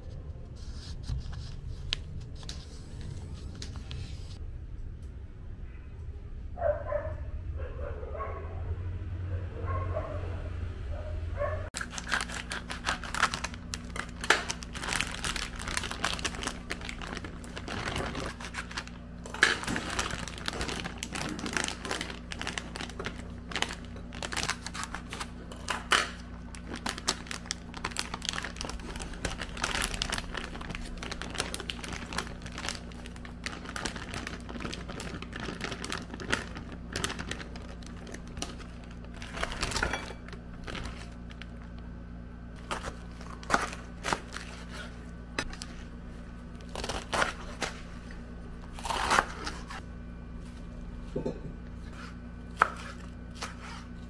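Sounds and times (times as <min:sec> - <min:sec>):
steady low hum: 0:07.2 - 0:54.0
plastic bags crinkling: 0:11.8 - 0:41.8, 0:42.6 - 0:46.0.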